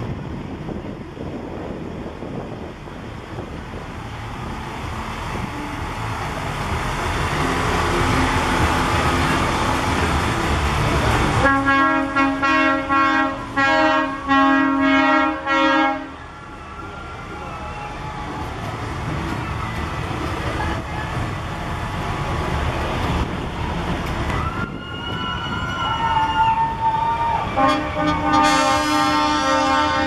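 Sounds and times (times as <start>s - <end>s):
lorry rolling past: 0.0s - 29.8s
vehicle horn tooting: 11.4s - 16.1s, 27.6s - 30.0s.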